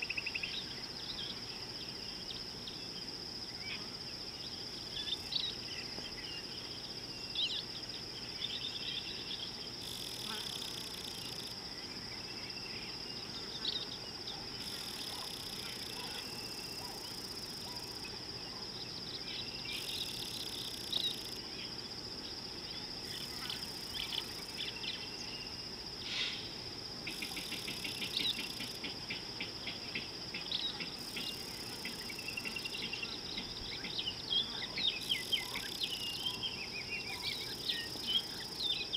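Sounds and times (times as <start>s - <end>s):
high insect drone: 0.0s - 38.9s
bird chirps: 27.1s - 38.9s.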